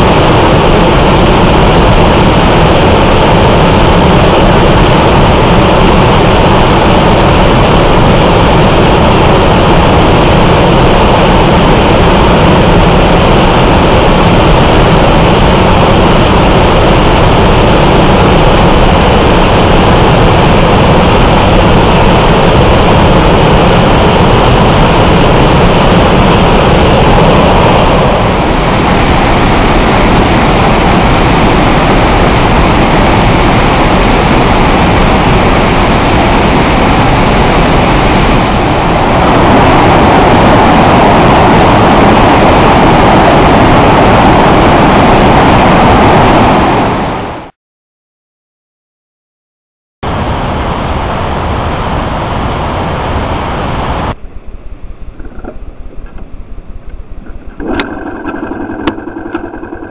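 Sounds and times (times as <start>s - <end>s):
waterfall rushing: 0.0s - 47.5s.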